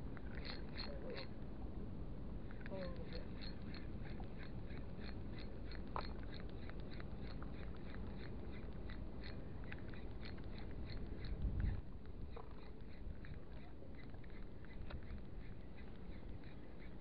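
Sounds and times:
wind rumble on microphone: 9.5s - 17.0s.

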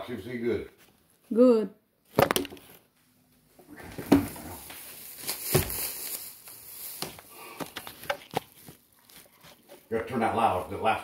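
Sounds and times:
rustling crinkling handling noise: 3.9s - 11.0s.

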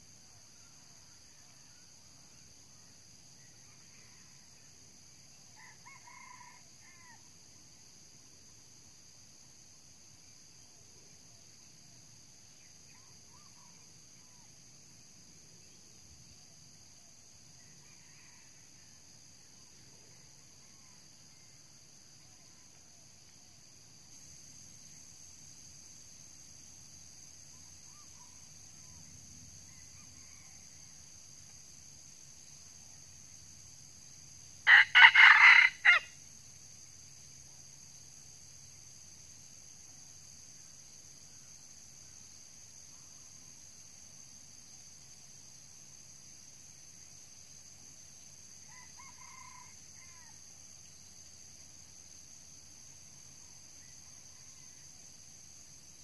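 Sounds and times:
high insect buzz: 23.2s - 54.3s
rooster crowing: 34.7s - 36.2s, 48.7s - 50.4s.

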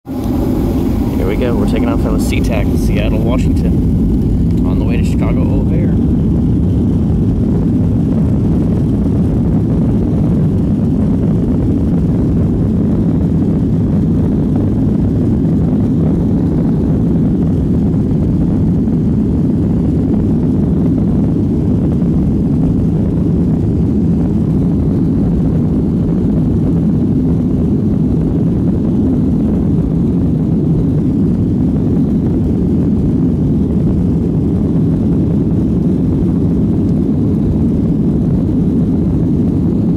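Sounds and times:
jet engine and airflow noise: 0.0s - 39.9s.

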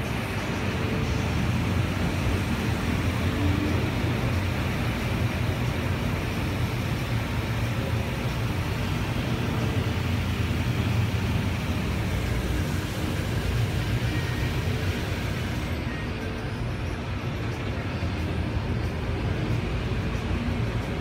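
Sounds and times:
high-pressure water jets spraying: 0.0s - 16.0s
car wash machinery hum: 0.0s - 21.0s.

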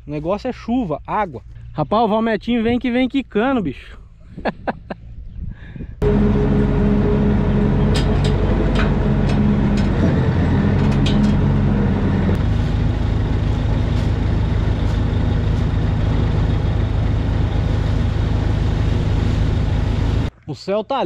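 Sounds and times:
diesel tractor engine idling: 6.0s - 20.3s
metal rattles and knocks: 6.2s - 17.6s.

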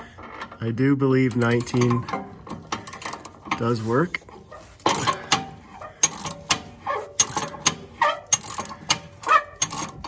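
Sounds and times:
ratchet wrench clicking: 1.3s - 3.4s, 4.8s - 5.4s, 6.0s - 10.0s.

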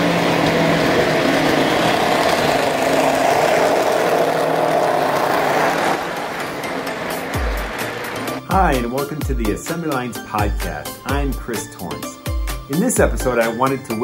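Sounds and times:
model train rumbling on track: 0.0s - 8.4s.

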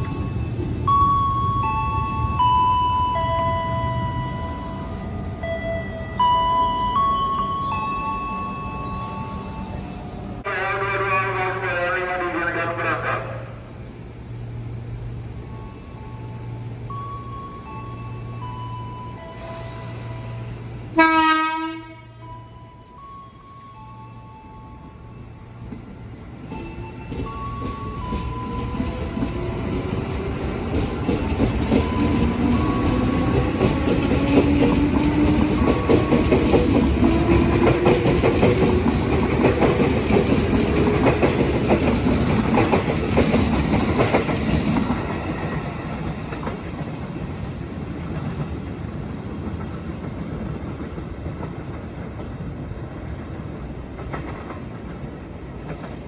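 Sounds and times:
wheels clacking over rail joints: 25.7s - 52.4s.

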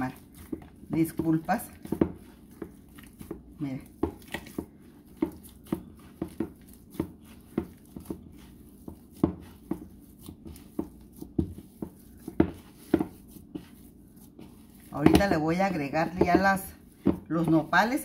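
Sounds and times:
hands kneading wet dough: 0.0s - 18.0s.

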